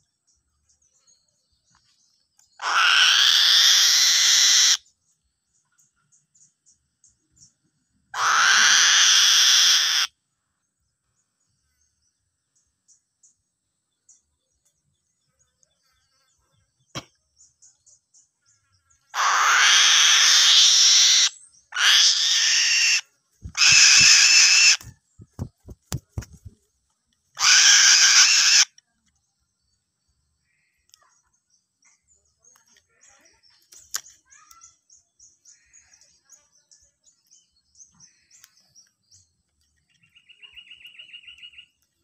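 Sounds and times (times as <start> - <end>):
young bird of prey screeching: 2.6 - 4.8, 8.2 - 10.1, 19.2 - 25.0, 27.4 - 28.8.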